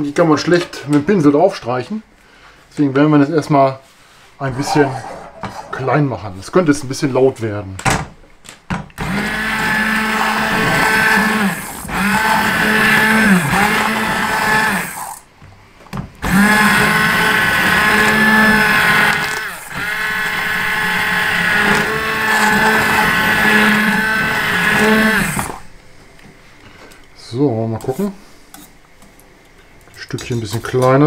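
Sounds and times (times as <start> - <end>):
immersion blender motor whining: 9.0 - 15.2, 16.2 - 25.6.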